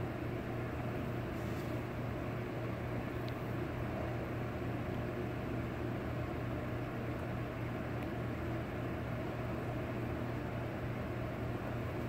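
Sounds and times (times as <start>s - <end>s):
low machine hum: 0.0s - 12.0s.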